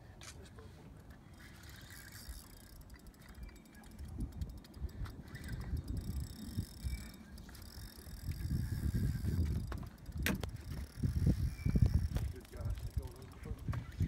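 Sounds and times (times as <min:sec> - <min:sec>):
fishing reel ticking: 0:01.0 - 0:14.0
wind rumble on microphone: 0:04.0 - 0:14.0.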